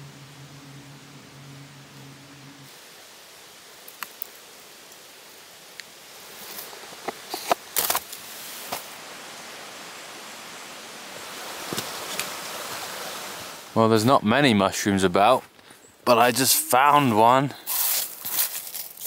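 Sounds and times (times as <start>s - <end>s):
rustling: 6.2s - 9.0s, 17.5s - 19.0s.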